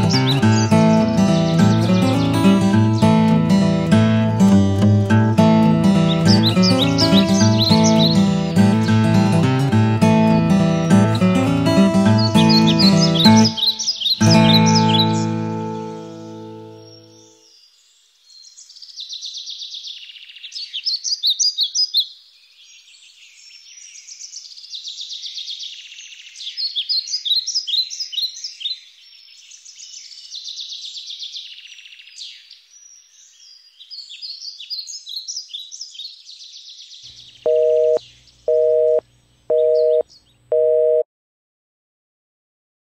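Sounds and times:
birds singing: 0.0 - 41.0
electronic two-note beeps: 37.5 - 41.0.

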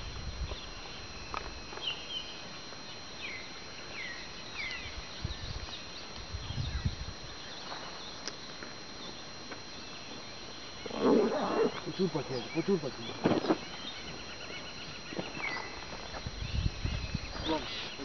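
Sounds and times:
steady high-pitched tone: 0.0 - 18.0
birds chirping and whistling: 9.8 - 18.0.

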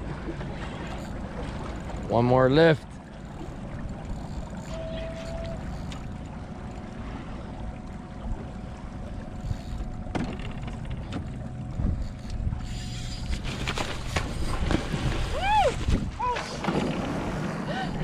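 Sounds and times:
water lapping against hull: 0.0 - 18.0
wind buffeting microphone: 14.2 - 18.0.

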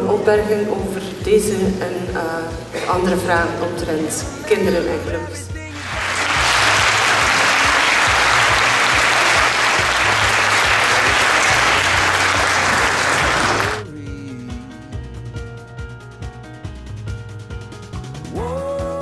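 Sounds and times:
background music: 0.0 - 19.0
audience applauding: 5.7 - 13.8.

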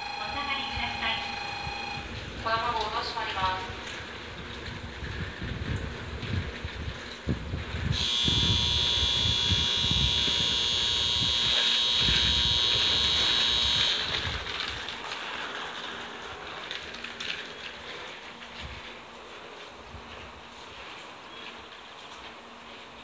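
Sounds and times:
platform warning buzzer tone: 0.0 - 2.1, 7.9 - 14.5.

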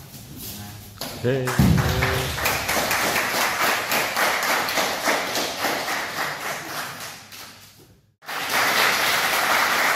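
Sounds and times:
audience applauding: 1.8 - 7.1, 8.2 - 9.9.

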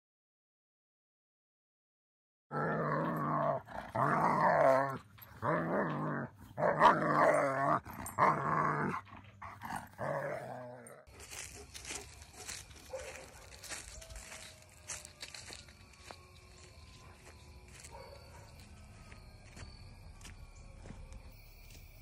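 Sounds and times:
dog growling: 2.5 - 11.1.

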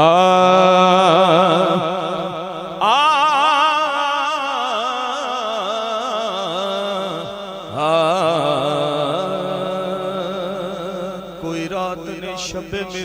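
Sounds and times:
man singing melismatic phrases: 7.8 - 13.0.

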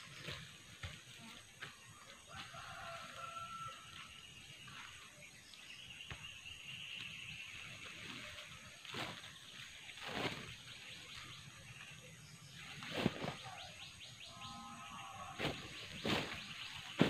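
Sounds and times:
birds chirping: 0.0 - 17.0
plastic sack rustling: 12.8 - 13.4, 15.4 - 17.0.

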